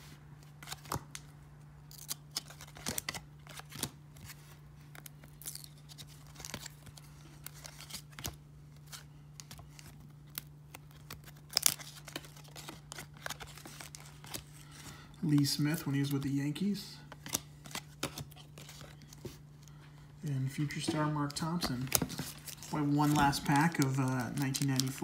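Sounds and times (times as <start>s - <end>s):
steady low hum: 0.0s - 25.0s
cards flicking and scraping: 17.1s - 19.8s.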